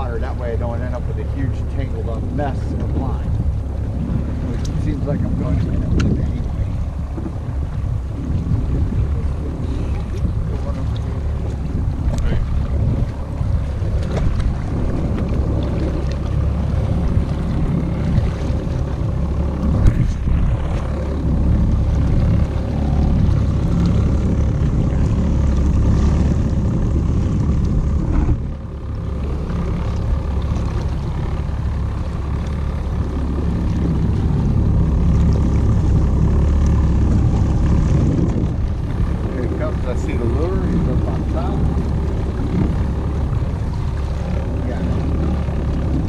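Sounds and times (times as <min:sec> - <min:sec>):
outboard motor running: 0:00.0 - 0:46.0.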